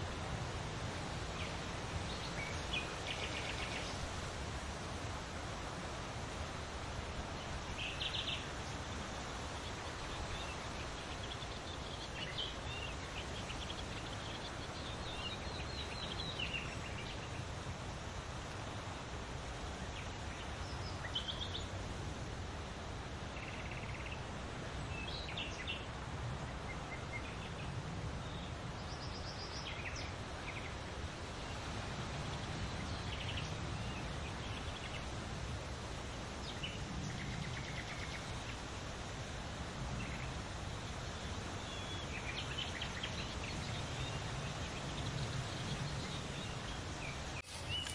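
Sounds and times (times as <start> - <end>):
steady noisy hiss: 0.0 - 47.9
songbird chirps and trills: 19.6 - 21.8, 39.9 - 47.9.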